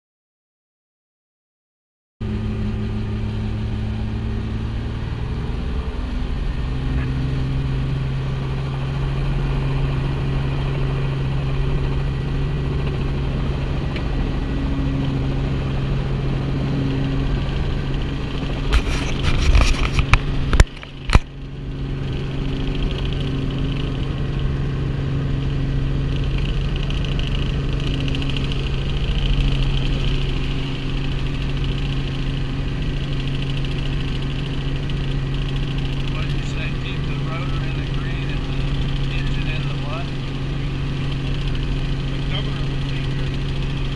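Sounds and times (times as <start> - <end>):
helicopter engine and rotor drone: 2.2 - 43.9.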